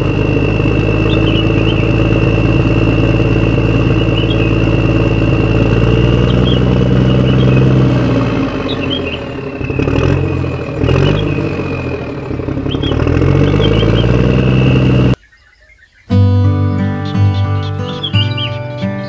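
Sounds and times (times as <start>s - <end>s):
high whine: 0.0s - 15.2s
toy tractor engine: 0.0s - 15.2s
birds chirping: 0.0s - 19.0s
music: 16.1s - 19.0s.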